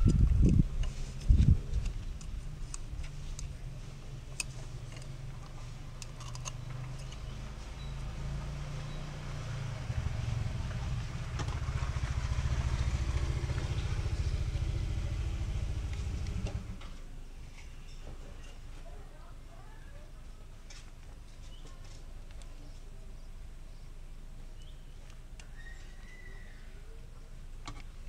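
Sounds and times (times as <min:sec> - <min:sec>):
vehicle engine running: 0:00.1 - 0:17.0.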